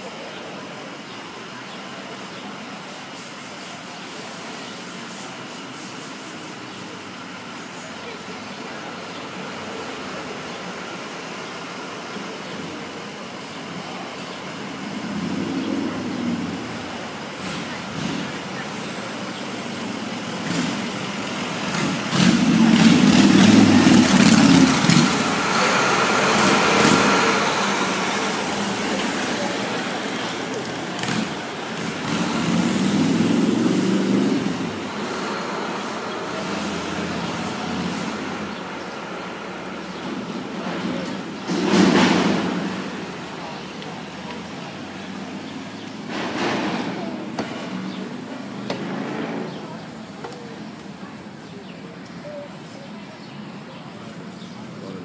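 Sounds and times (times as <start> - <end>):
diesel minibus passing: 0.0 - 55.0
traffic hiss: 0.0 - 55.0
heavy truck passing: 7.0 - 52.0
motorcycle passing: 20.4 - 38.5.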